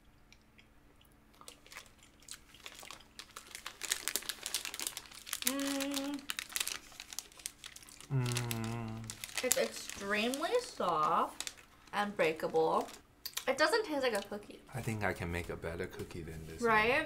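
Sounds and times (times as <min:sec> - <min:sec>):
plastic wrapper crinkling: 0:01.5 - 0:13.0
person humming: 0:08.1 - 0:09.2
person speaking: 0:08.1 - 0:11.4.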